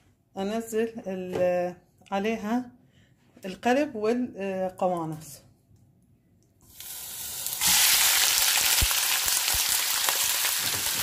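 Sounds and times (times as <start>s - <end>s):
food sizzling in hot oil: 6.7s - 11.0s.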